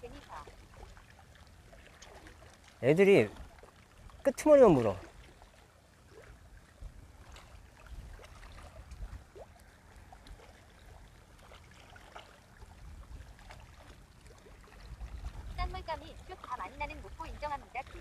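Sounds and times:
water lapping against rocks: 0.0 - 18.0
wind rumble on microphone: 6.4 - 10.4, 12.6 - 18.0.

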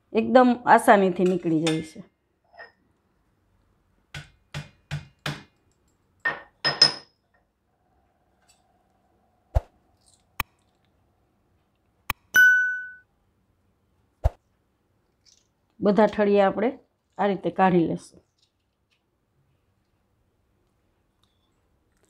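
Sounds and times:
ringing metal clink: 12.4 - 13.0.

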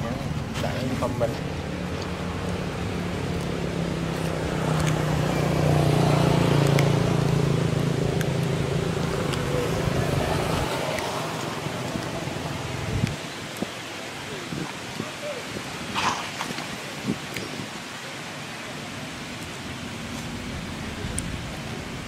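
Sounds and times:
vehicle engine passing by: 0.8 - 13.1.

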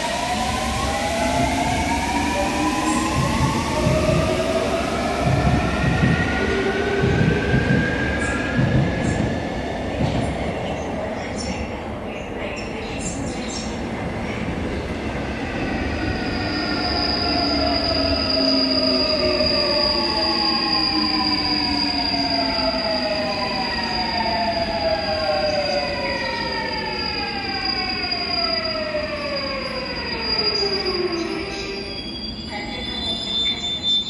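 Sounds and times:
train braking: 0.0 - 34.0
wheels rumbling on rail: 0.1 - 16.5.

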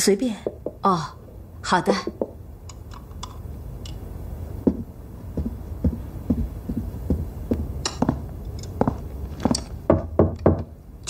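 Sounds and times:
steady low hum: 0.0 - 11.0
sharp knocks: 0.4 - 0.9, 2.0 - 2.4, 8.8 - 10.7
soft low thumps: 0.4 - 2.4, 4.5 - 10.8.

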